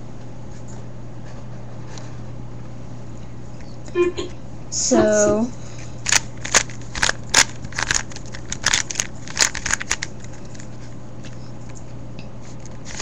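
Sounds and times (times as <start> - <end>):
faint steady hum: 0.0 - 13.0
puzzle cube plastic clicks: 6.1 - 10.6.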